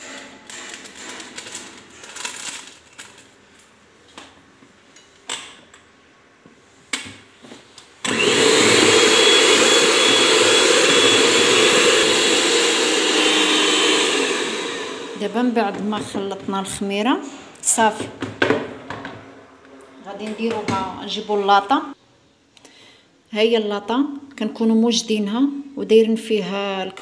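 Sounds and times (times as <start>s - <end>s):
electric hand mixer whirring: 8.0s - 15.6s.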